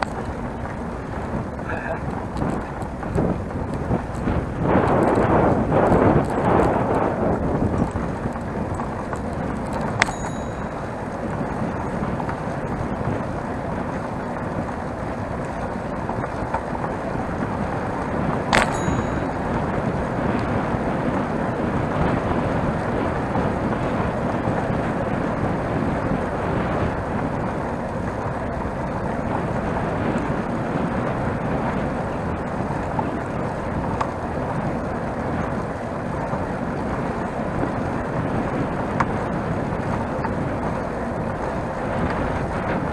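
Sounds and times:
bicycle tyres on asphalt: 0.0 - 42.9
wind noise: 0.0 - 42.9
metallic clink with ring: 10.0 - 10.8, 18.6 - 19.4.

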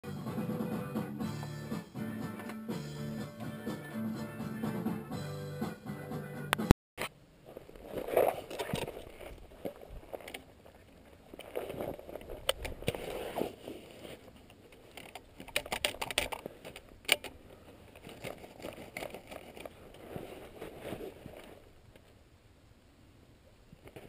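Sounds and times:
soft rustling: 7.4 - 15.5, 16.3 - 22.2.

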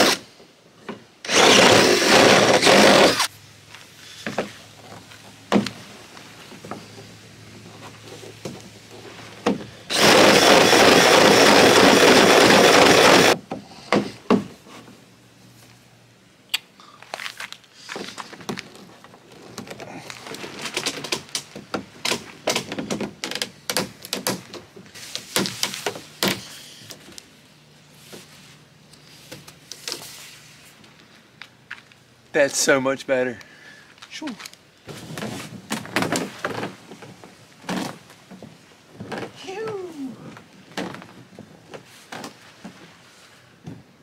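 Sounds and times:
cordless drill running: 0.0 - 0.2, 1.2 - 3.3, 9.9 - 13.4.

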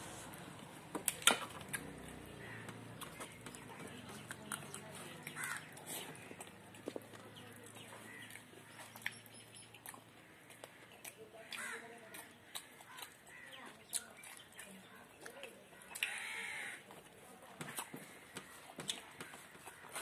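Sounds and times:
chewing mouth sounds: 1.1 - 16.2.

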